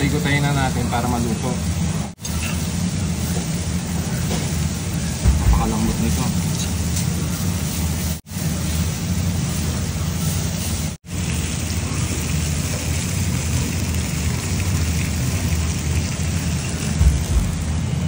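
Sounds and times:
meat sizzling on hot stone: 2.1 - 18.0
low thump: 5.2 - 6.0, 17.0 - 17.8.

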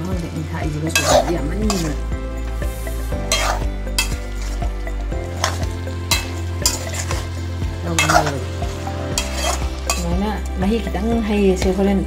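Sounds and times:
food sizzling: 0.0 - 12.0
spatula scraping pan: 0.8 - 2.0, 3.2 - 4.7, 5.3 - 10.1.

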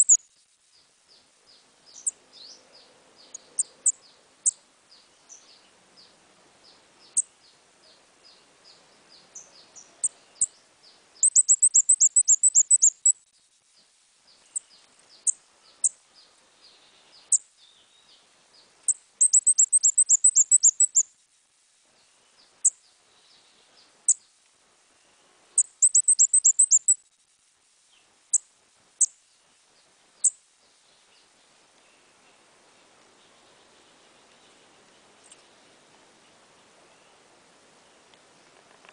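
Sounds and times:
small songbird high sliding calls: 0.0 - 0.2, 11.2 - 13.2, 18.8 - 21.1, 25.6 - 27.0.

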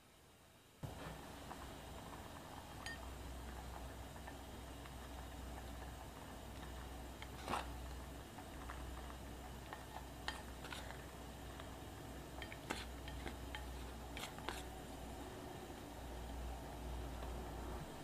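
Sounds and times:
steady low hum: 0.0 - 18.0
kitchen clicks and taps: 12.4 - 14.7.

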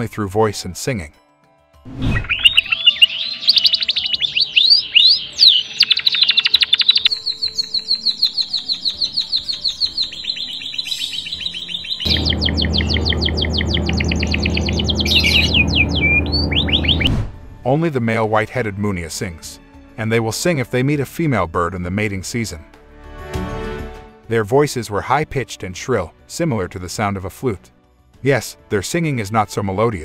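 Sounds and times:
bird singing trills: 2.2 - 17.1
steady low hum: 12.1 - 16.0.

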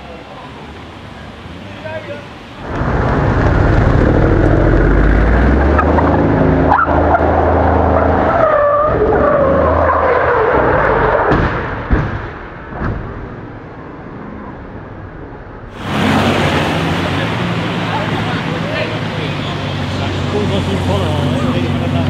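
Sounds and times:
steady low noise: 2.6 - 6.7
car engine revving hard: 15.8 - 22.0.

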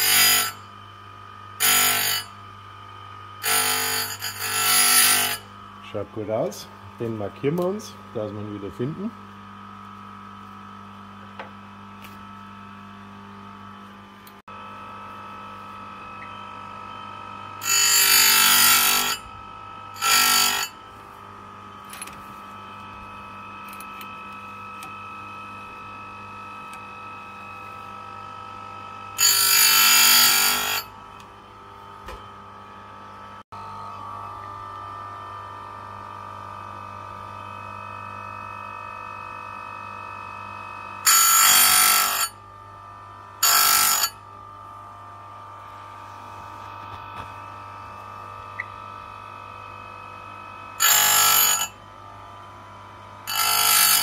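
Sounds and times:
grinding wheel grinding metal teeth: 0.0 - 0.6, 1.6 - 2.4, 3.4 - 5.5, 17.5 - 19.3, 19.9 - 20.9, 21.7 - 25.0, 29.1 - 30.9, 41.0 - 42.4, 43.4 - 44.2, 50.8 - 51.8, 53.2 - 54.0
grinder motor hum and whine: 0.0 - 54.0.

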